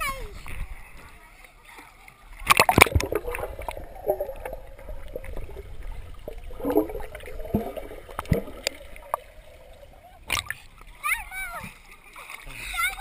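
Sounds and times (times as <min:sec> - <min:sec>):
splash into pool: 0:02.4 - 0:05.7
underwater gurgling and bubbling: 0:02.4 - 0:10.8.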